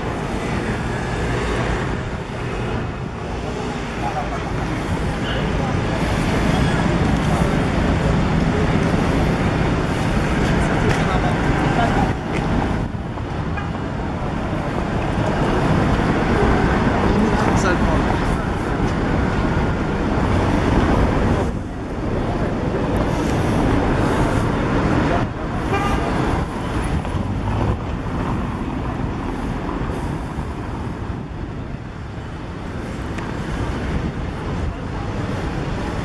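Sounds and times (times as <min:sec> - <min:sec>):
traffic rumble: 0:00.0 - 0:36.0.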